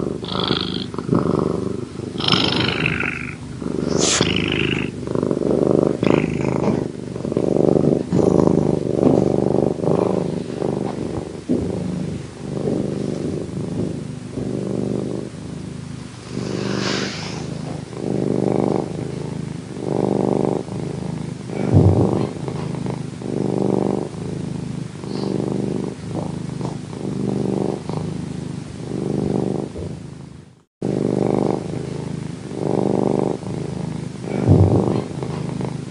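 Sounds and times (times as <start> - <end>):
cat purring: 0.0 - 35.9
short low thump: 21.7 - 22.3, 34.5 - 34.9.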